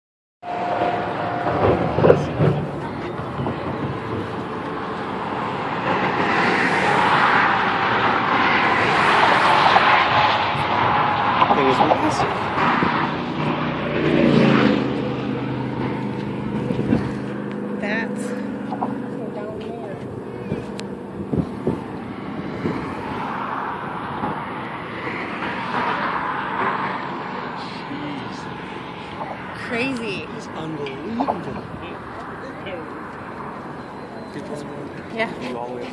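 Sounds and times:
highway traffic rushing past: 0.4 - 35.9
wind on microphone: 0.5 - 26.2
low thumps: 10.5 - 24.6.

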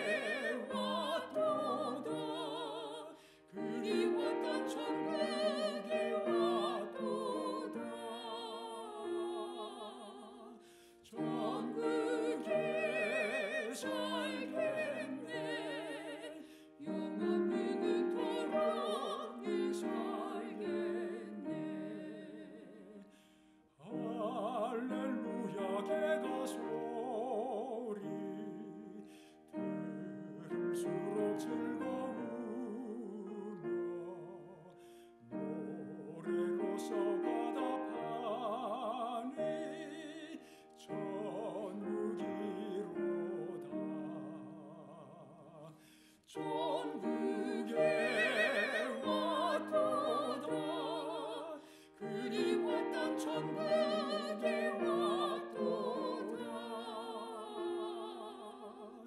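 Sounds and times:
piano accompaniment: 0.0 - 10.2, 11.1 - 23.0, 46.4 - 58.8
man and woman singing a hymn: 0.0 - 59.0.

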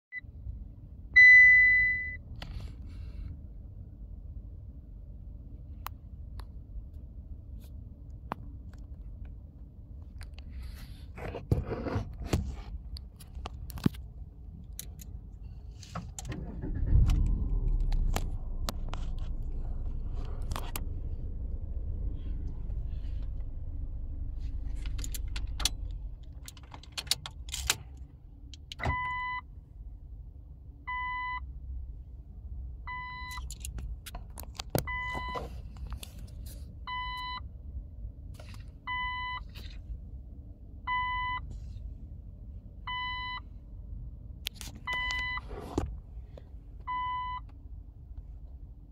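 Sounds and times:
low steady rumble: 0.1 - 48.9
car dashboard chime beeping: 1.2 - 2.2, 28.9 - 29.4, 34.9 - 35.4, 40.9 - 41.5, 42.9 - 43.4, 46.9 - 47.5
sharp clicks and rattles: 24.6 - 28.8.

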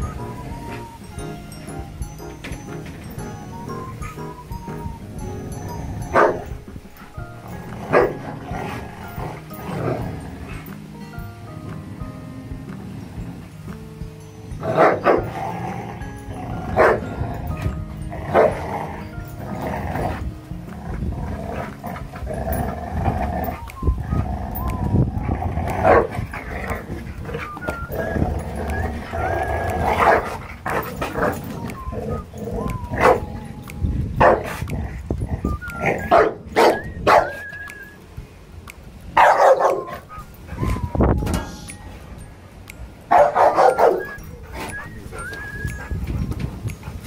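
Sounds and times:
dogs growling: 2.6 - 10.9, 14.6 - 37.9, 43.1 - 47.0
dog barks and snarls: 7.8 - 9.1, 25.7 - 27.6, 29.1 - 31.6, 39.2 - 40.0, 43.1 - 44.9.

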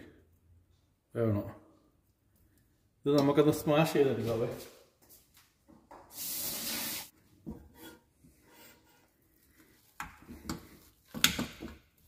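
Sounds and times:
harsh hiss: 6.1 - 7.1.

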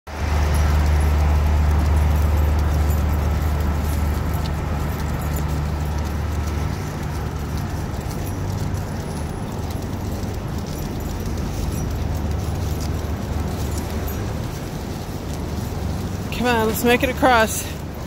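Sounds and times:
large vehicle engine idling: 0.1 - 18.0
street traffic: 0.1 - 18.0.

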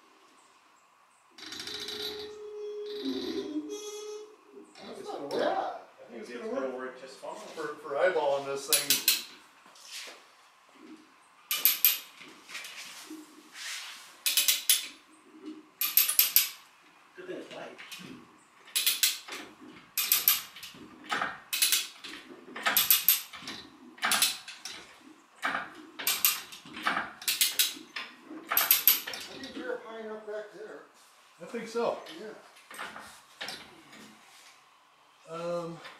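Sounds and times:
ratchet clicking: 8.7 - 9.3, 11.5 - 12.1, 14.2 - 14.9, 15.8 - 16.6, 18.7 - 19.4, 20.0 - 20.7, 21.5 - 23.4, 26.0 - 26.6, 27.2 - 27.8, 28.5 - 29.3.

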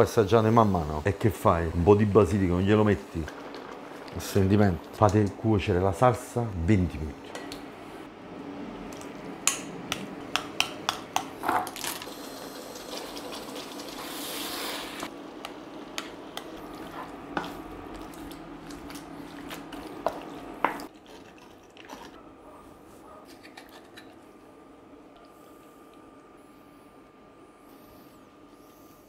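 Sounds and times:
wet stirring and sloshing: 16.6 - 22.2.

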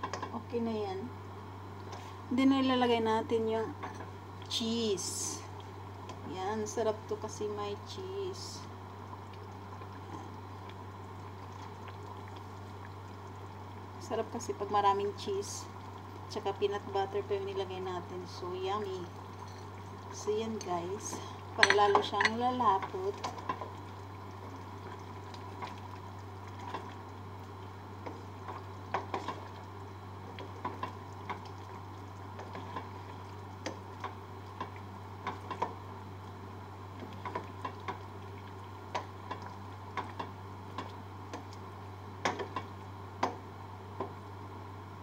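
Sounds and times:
spatula knocking against pot: 21.6 - 22.4.

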